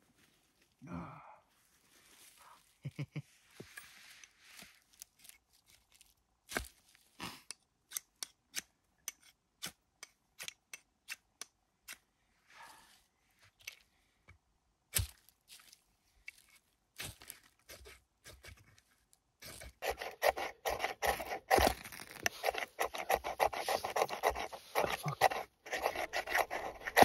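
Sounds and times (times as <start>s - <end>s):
knife scraping ferro rod: 19.4s - 27.0s.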